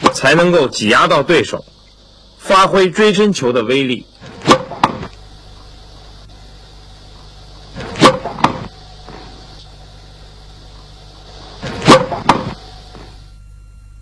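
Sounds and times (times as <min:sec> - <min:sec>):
steady hiss: 0:00.0 - 0:14.0
quieter knock: 0:04.4 - 0:05.1, 0:07.8 - 0:09.2, 0:11.7 - 0:13.2
tennis racket striking ball: 0:04.4 - 0:05.1, 0:07.8 - 0:08.7, 0:11.8 - 0:12.6.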